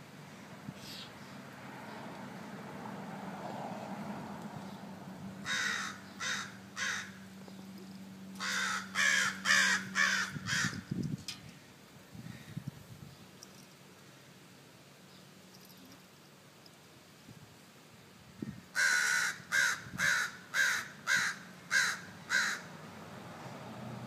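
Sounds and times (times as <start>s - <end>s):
crows cawing: 5.4s - 7.2s, 8.4s - 10.8s, 18.8s - 22.7s.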